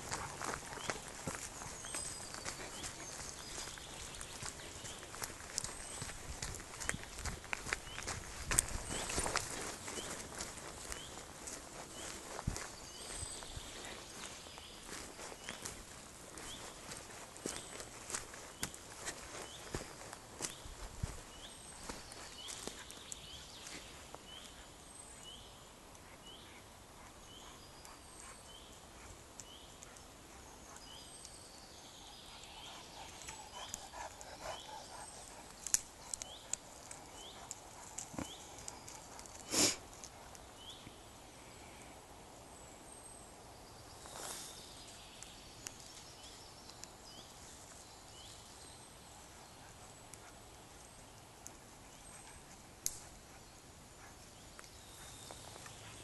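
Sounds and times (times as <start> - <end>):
twig clicks and rustles: 35.5 - 40.5.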